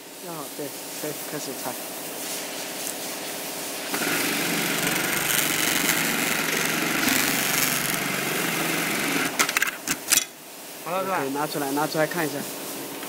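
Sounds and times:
sewing machine whirring: 0:03.9 - 0:10.0.

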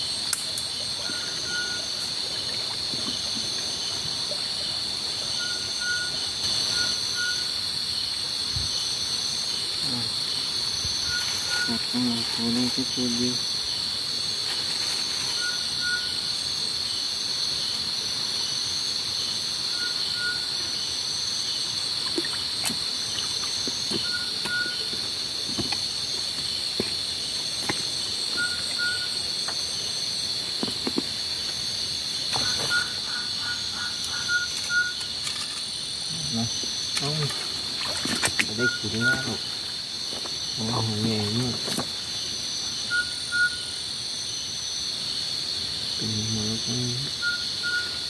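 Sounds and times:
crickets chirping: 0:00.0 - 0:48.0
footsteps in stream bed: 0:01.9 - 0:04.4, 0:22.0 - 0:33.0, 0:36.5 - 0:40.6, 0:41.2 - 0:42.1.

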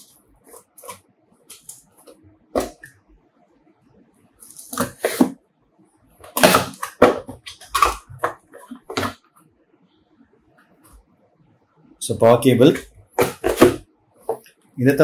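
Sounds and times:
cardboard and paper rustling: 0:12.7 - 0:14.4.

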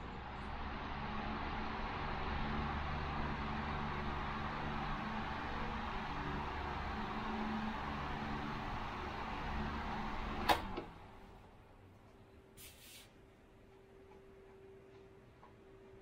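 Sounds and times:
electric fan rushing air: 0:00.0 - 0:11.9
fan switch click: 0:10.4 - 0:10.9.

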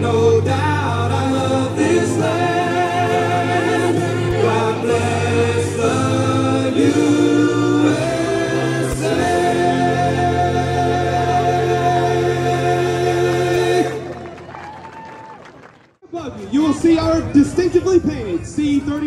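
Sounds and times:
choir singing: 0:00.0 - 0:14.2.

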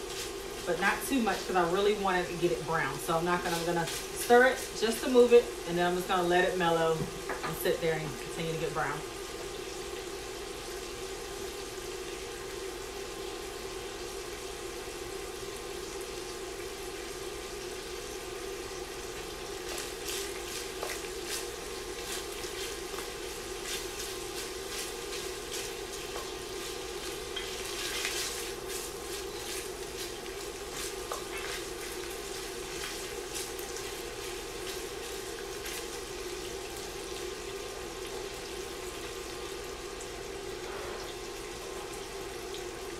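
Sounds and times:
bacon sizzling and popping: 0:00.0 - 0:07.8, 0:08.4 - 0:42.9
wooden spoon stirring in a pot: 0:19.6 - 0:36.4.

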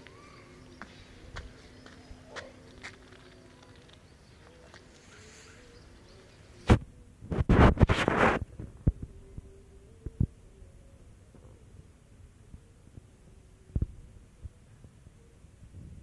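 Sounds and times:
faint low hum: 0:00.0 - 0:16.0
microphone rubbing bumps: 0:06.6 - 0:10.3.

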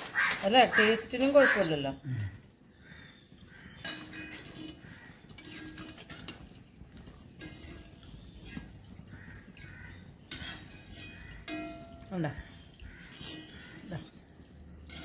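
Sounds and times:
chips rattling in steel bowl: 0:03.8 - 0:08.0.

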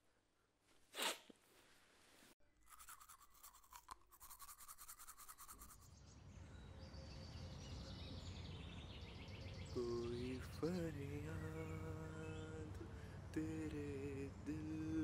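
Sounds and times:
teeth brushing with toothbrush: 0:02.6 - 0:05.9
faint low hum: 0:05.1 - 0:15.0.

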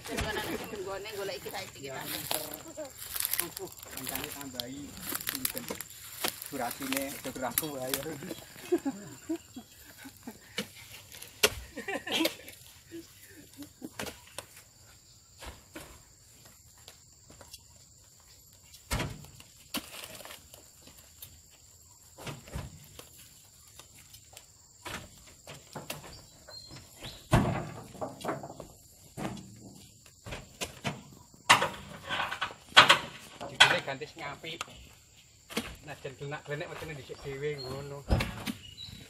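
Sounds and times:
fruit bunches thudding into truck: 0:27.2 - 0:29.7.

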